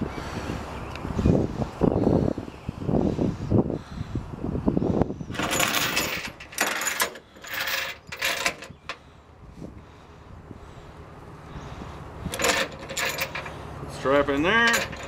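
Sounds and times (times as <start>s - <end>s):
chain rattling on metal deck: 5.3s - 9.0s, 12.3s - 13.7s, 14.4s - 15.0s.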